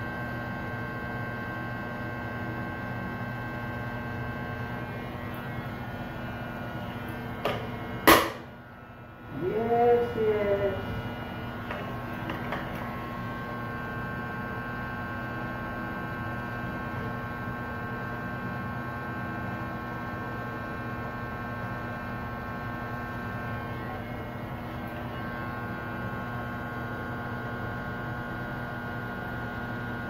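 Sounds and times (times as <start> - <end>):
electric hair clippers buzzing: 0.0 - 30.0.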